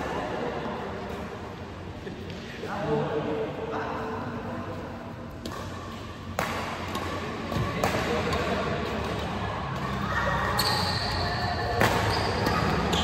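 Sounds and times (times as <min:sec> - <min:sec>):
racket hitting shuttlecock: 0:05.4 - 0:13.0
shoe squeaks on court floor: 0:10.5 - 0:13.0.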